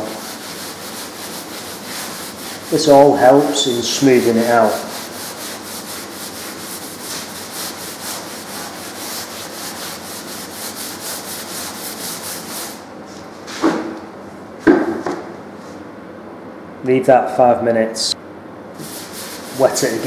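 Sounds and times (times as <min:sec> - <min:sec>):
stiff brush scrubbing wet wall: 0:00.0 - 0:12.8, 0:18.8 - 0:20.0.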